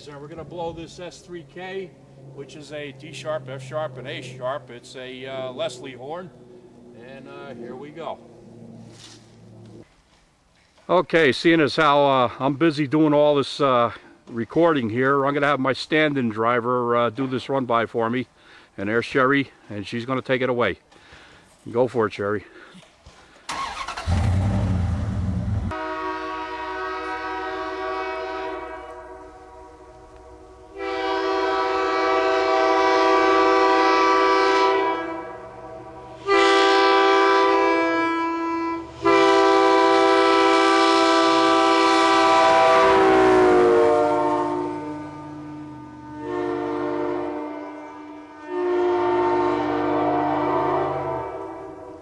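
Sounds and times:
low engine rumble: 0:00.0 - 0:09.8, 0:23.6 - 0:25.8
train air horn blasts: 0:25.6 - 0:52.0.

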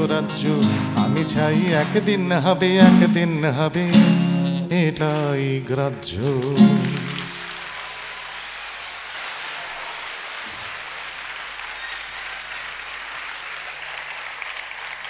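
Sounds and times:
audience applause: 0:00.0 - 0:04.2, 0:06.1 - 0:15.0
person singing: 0:00.0 - 0:07.5.

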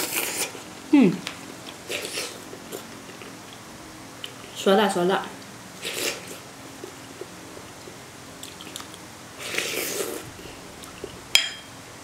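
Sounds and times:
soft chewing: 0:00.0 - 0:04.6, 0:05.4 - 0:11.2
slurping from a spoon: 0:09.4 - 0:10.3
metal spoon clinking on bowl: 0:11.4 - 0:11.7.

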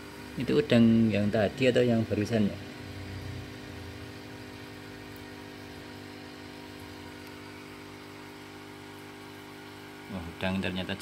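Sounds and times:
motor humming steadily: 0:00.0 - 0:11.0.

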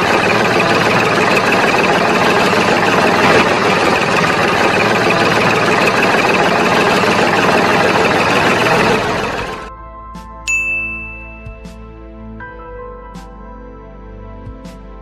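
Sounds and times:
motor running steadily: 0:00.0 - 0:09.7.

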